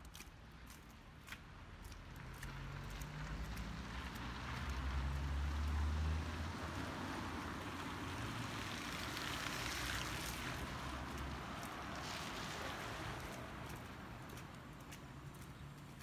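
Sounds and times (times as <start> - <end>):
tyres hissing on wet road: 2.4 - 14.6.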